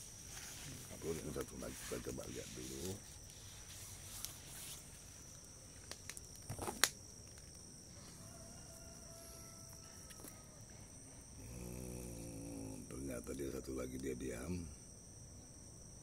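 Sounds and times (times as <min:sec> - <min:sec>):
leaves rustling: 0:00.0 - 0:08.8
high-pitched insect drone: 0:00.0 - 0:16.0.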